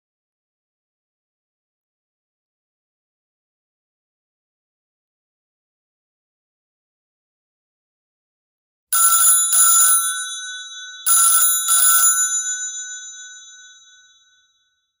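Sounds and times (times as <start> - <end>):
telephone bell ringing: 9.0 - 14.8.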